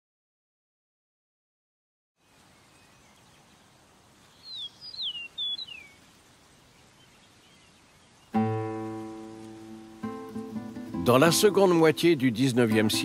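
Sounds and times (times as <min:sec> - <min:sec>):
bird chirping: 0:02.2 - 0:11.2
faint outdoor ambience: 0:02.2 - 0:13.0.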